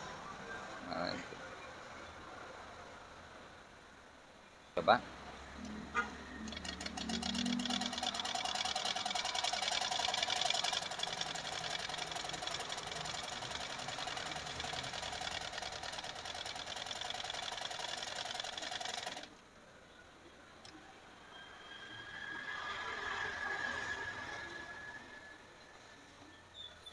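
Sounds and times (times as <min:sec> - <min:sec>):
sewing machine stitching fast: 0:06.4 - 0:19.3.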